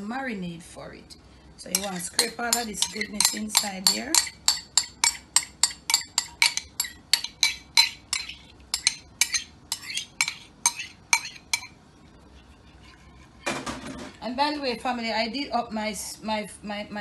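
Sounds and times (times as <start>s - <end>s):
spoon scraping ceramic bowl: 1.7s - 11.8s.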